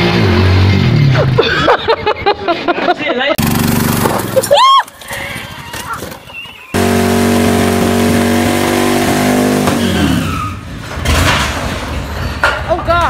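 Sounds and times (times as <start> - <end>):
lawn tractor engine at full throttle: 3.4 - 4.4, 6.8 - 10.2.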